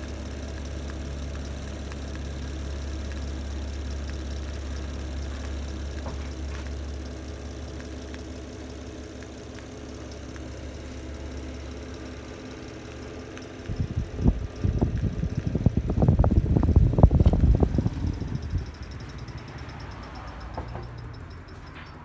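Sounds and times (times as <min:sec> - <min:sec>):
fan motor humming: 0:00.0 - 0:22.0
fan airflow gusting on microphone: 0:13.6 - 0:22.0.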